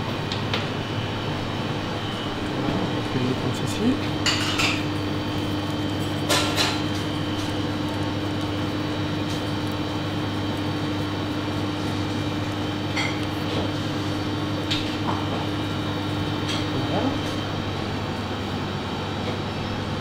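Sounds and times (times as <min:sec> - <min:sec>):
kitchen ventilation hum: 0:00.0 - 0:20.0.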